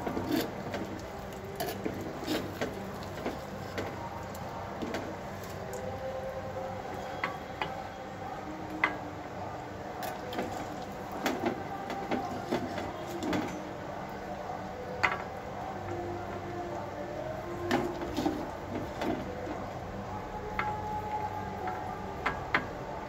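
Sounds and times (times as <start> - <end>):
steady background hum: 0.0 - 23.0.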